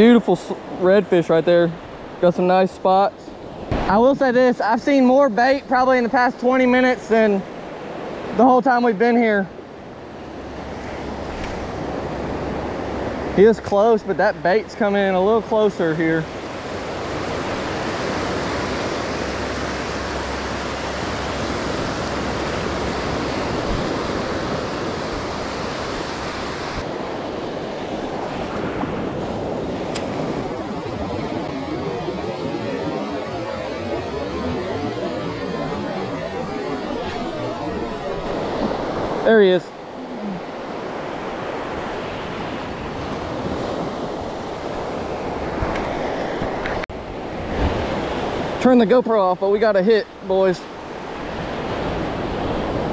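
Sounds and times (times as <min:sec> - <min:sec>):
surf breaking on beach: 0:03.4 - 0:09.4, 0:10.4 - 0:49.3
wind rumbling on microphone: 0:16.2 - 0:33.6, 0:34.4 - 0:48.6, 0:50.1 - 0:52.9.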